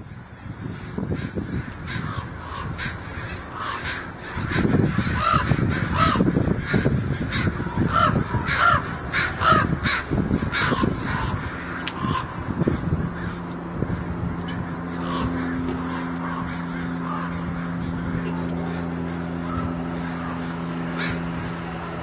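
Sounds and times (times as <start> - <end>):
crows cawing: 0.0 - 13.6, 14.4 - 22.0.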